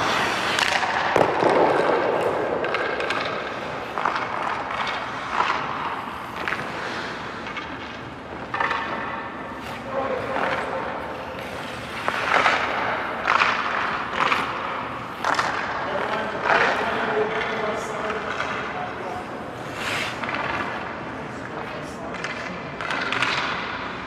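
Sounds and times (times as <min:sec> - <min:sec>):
skate blades scraping ice: 0:00.0 - 0:24.0
stick and puck clicks on ice: 0:00.0 - 0:24.0.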